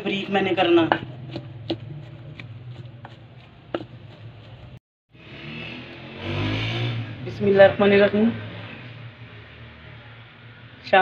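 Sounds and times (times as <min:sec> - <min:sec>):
pestle knocking in wooden mortar: 0:00.0 - 0:04.8.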